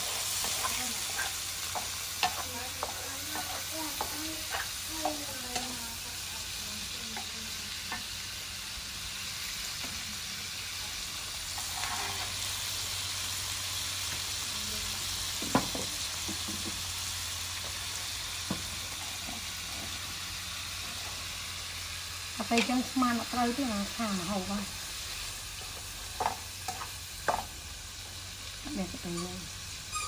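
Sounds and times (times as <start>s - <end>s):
food sizzling in a wok: 0.0s - 30.0s
wooden spatula stirring: 0.3s - 5.7s.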